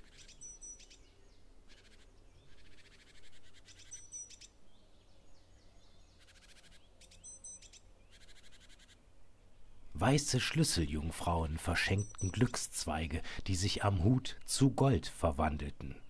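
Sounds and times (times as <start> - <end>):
bird trilling: 0.0 - 1.1, 1.7 - 4.6, 6.1 - 9.0, 11.8 - 12.6
quiet bird chirps: 0.0 - 16.0.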